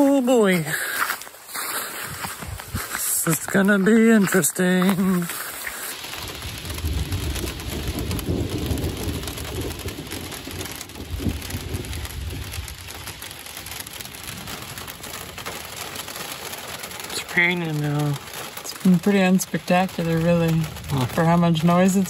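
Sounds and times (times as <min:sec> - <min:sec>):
rain pattering on foliage: 0:00.0 - 0:22.0
low rumble of thunder: 0:06.2 - 0:15.8.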